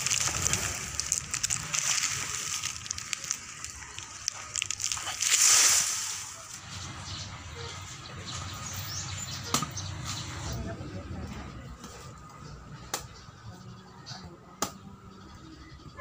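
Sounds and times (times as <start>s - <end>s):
dry leaves rustling and crackling: 0.0s - 9.2s.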